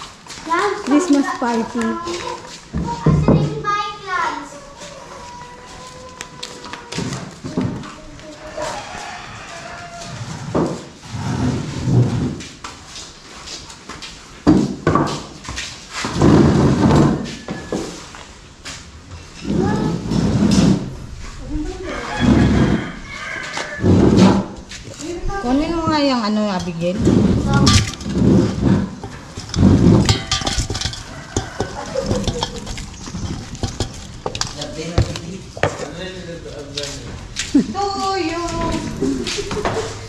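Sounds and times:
table scraping on concrete floor: 9.6s - 12.6s, 16.0s - 18.2s, 19.2s - 21.1s, 22.1s - 36.0s
wooden bench knocking on concrete: 25.7s - 35.9s
fried chicken tumbling into bowl: 27.1s - 35.8s.

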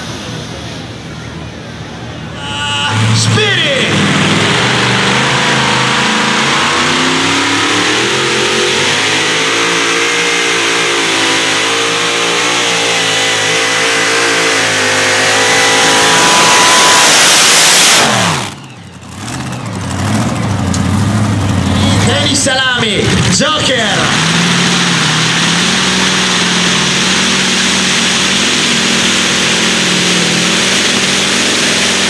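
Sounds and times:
tractor engine at high revs: 2.8s - 32.0s.

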